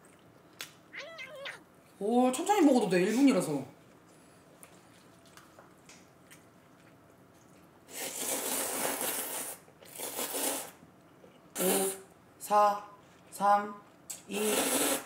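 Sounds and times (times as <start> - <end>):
person slurping noodles: 7.9 - 10.8, 14.4 - 15.0.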